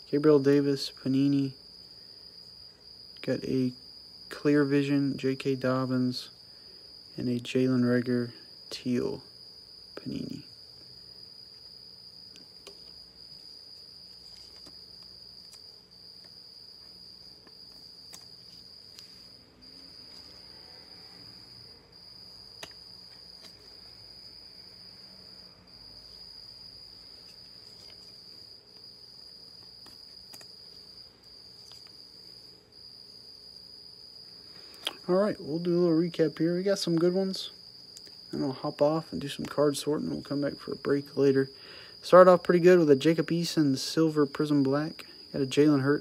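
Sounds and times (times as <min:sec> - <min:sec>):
cricket trilling: 0:00.0 - 0:46.0
faint clicks of cards handled: 0:14.2 - 0:19.2, 0:22.6 - 0:23.7, 0:29.6 - 0:30.8, 0:31.6 - 0:32.0, 0:34.6 - 0:35.0.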